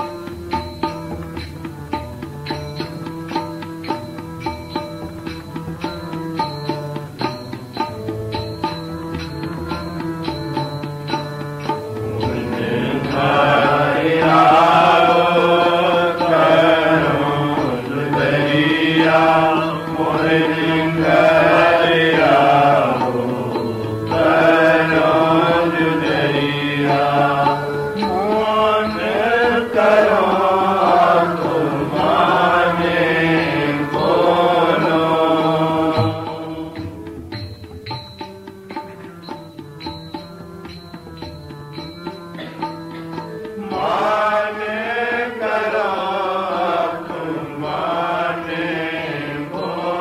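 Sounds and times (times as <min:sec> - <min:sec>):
harmonium drone: 0:00.0 - 0:50.0
devotional hymn singing: 0:11.9 - 0:37.2, 0:43.5 - 0:50.0.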